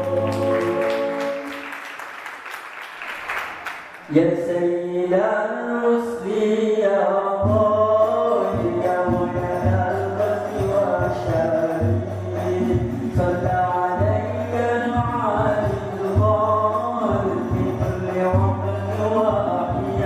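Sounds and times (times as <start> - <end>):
group singing a chord: 0.0 - 1.6
person singing solo: 0.0 - 1.6.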